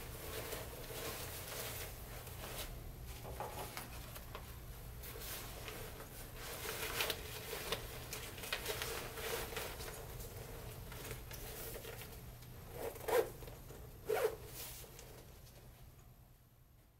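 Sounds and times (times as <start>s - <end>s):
zipper rasping: 12.6s - 14.5s.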